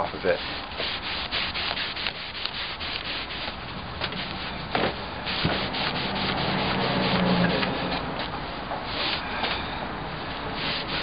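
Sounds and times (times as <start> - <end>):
cloth rubbing on wood: 0.0 - 9.2, 10.5 - 11.0.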